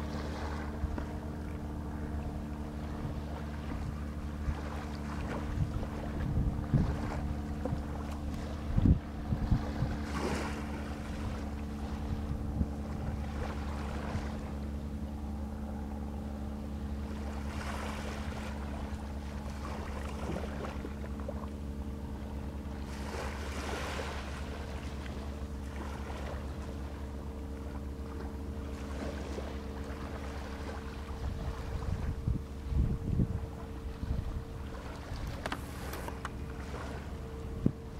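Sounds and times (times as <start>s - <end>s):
motorboat engine running: 0.0s - 37.9s
wind noise: 5.4s - 10.4s, 31.2s - 34.4s.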